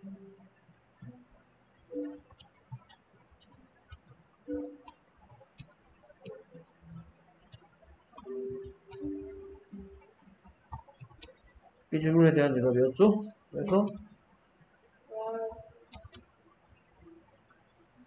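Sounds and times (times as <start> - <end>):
keyboard typing: 1.0 - 12.0, 13.0 - 14.2, 15.4 - 16.3.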